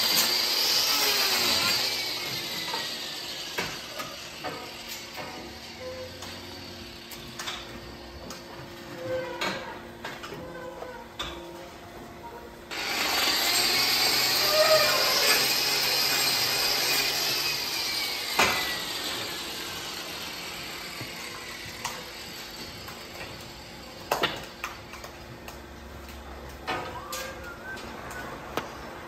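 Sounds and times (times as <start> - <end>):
angle grinder grinding: 0.0 - 8.0, 12.7 - 23.9.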